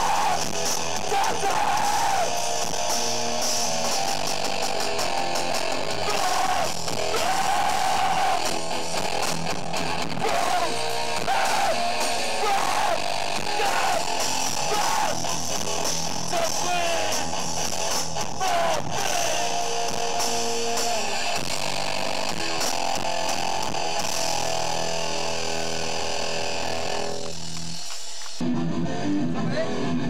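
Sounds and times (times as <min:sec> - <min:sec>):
shouted vocals: 0:00.0 - 0:02.4, 0:05.9 - 0:08.6, 0:10.0 - 0:15.3, 0:16.2 - 0:17.3, 0:18.3 - 0:19.6
hardcore band playing live: 0:00.0 - 0:30.0.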